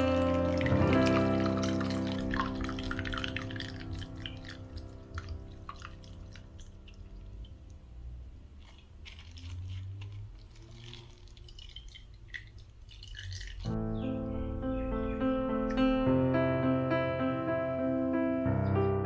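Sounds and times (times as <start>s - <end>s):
liquid pouring and splashing: 0.0s - 7.9s, 8.5s - 13.8s.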